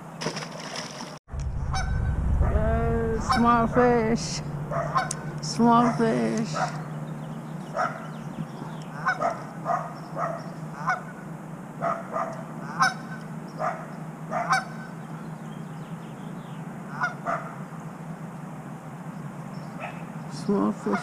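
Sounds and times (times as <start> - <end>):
geese honking: 1.6 - 2.6, 3.2 - 15.2, 16.8 - 17.8, 19.8 - 21.0.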